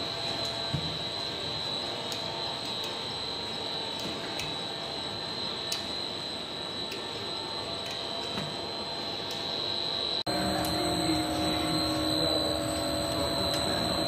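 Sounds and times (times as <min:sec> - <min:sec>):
extrusion machine whining: 0:09.7 - 0:14.0.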